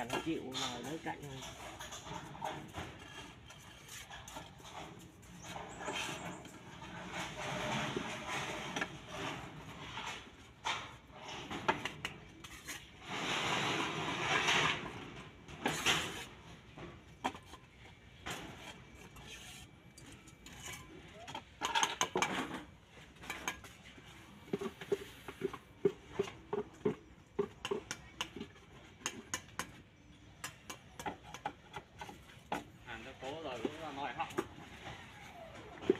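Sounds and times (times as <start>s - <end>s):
trowel scraping mortar on tile: 0.0s - 9.2s, 11.8s - 15.0s, 15.6s - 16.4s, 18.4s - 22.6s.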